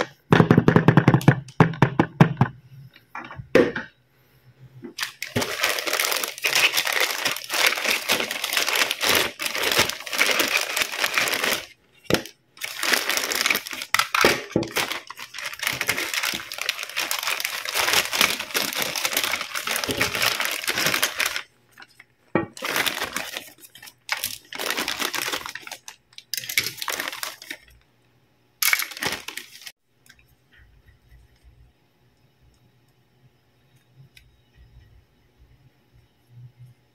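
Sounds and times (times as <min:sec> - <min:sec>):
plastic bag crinkling: 0:05.0 - 0:27.8, 0:28.6 - 0:29.8.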